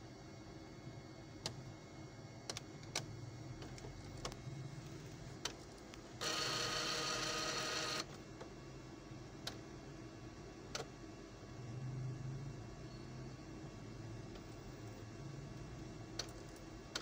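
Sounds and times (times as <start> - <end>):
printer motor whirring: 1.4 - 8.6.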